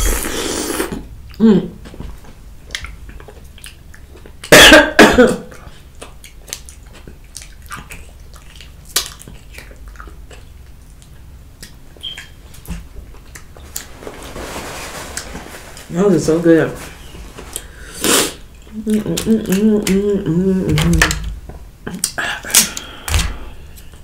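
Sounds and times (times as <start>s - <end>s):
chewing and mouth noises: 0.0s - 4.5s, 5.5s - 13.9s
person coughing: 4.5s - 5.5s.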